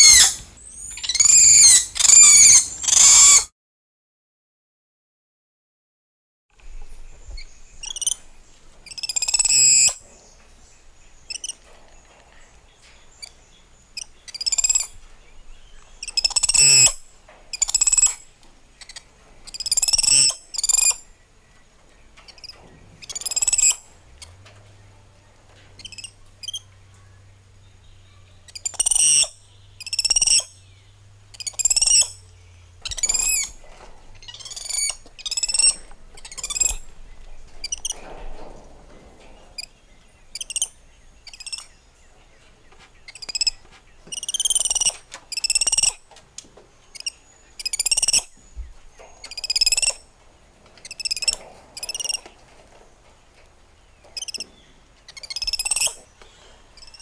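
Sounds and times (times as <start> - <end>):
monkeys calling: 0.0 - 3.5, 28.5 - 30.6, 31.3 - 32.2, 34.2 - 36.8, 44.1 - 46.0, 46.9 - 48.3.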